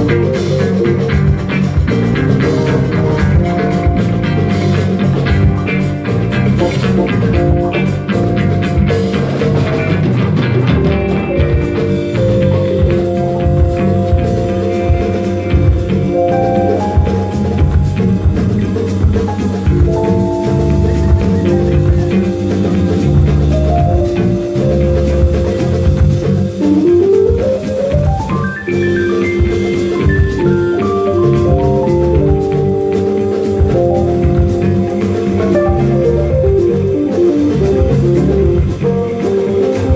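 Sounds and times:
drum kit: 0.0s - 39.9s
electric guitars: 0.0s - 39.9s
hand drums: 0.0s - 39.9s
lead line of held notes: 10.7s - 39.9s.

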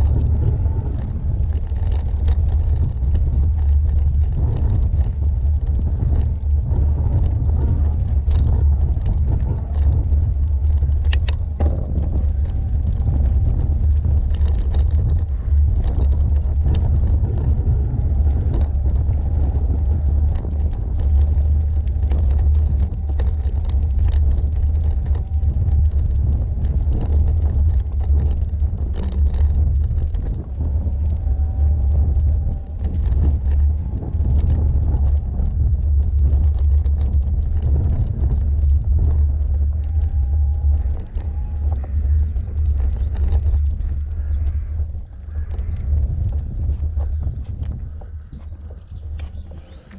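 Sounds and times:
small rattles and clicks: 0.0s - 49.9s
tyres rolling on gravel: 0.0s - 49.9s
wind on microphone: 0.0s - 49.9s.

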